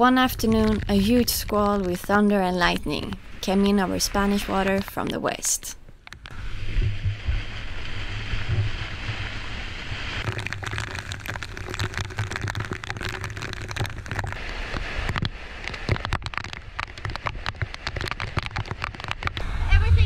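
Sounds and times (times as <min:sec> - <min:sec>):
wind rumble on microphone: 0:06.2 - 0:20.0
heavy rain pelting a deck: 0:06.4 - 0:19.4.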